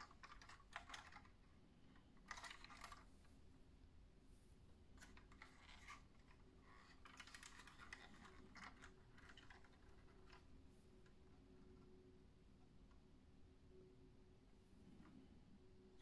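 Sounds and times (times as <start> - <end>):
fingers handling toy car model: 0.0 - 3.1, 5.0 - 12.0.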